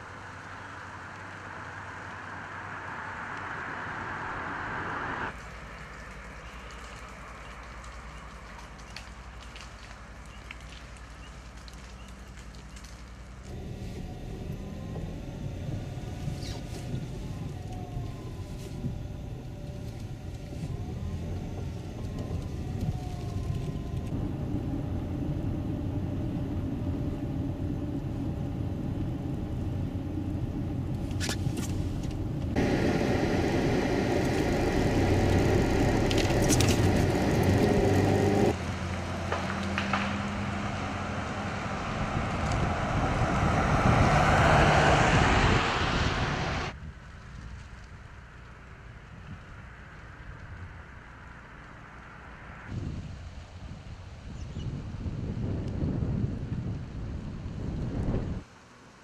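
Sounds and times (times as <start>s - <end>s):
car engine and tyre rumble: 0.0s - 59.0s
rushing noise: 1.0s - 5.4s, 13.5s - 38.6s, 41.0s - 46.8s.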